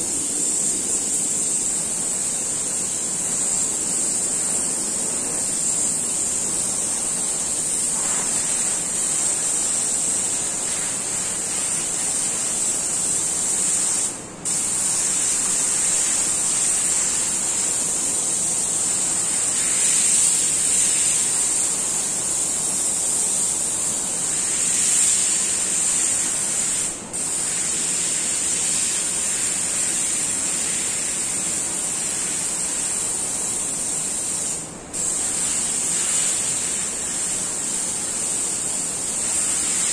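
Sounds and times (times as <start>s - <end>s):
airbrush hissing: 0.0s - 39.9s.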